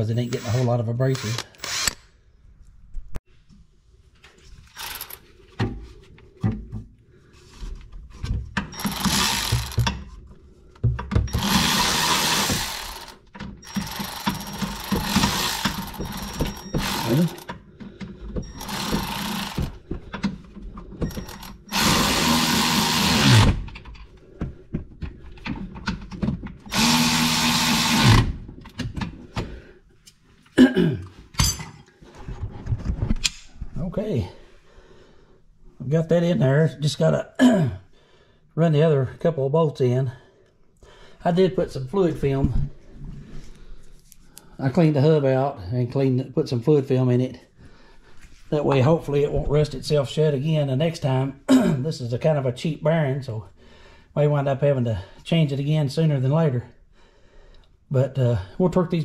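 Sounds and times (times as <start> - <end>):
power tool motor whirring: 1.2 - 2.1, 4.8 - 5.2, 8.8 - 9.8, 11.3 - 17.5, 18.4 - 19.8, 21.0 - 23.6, 26.7 - 28.4.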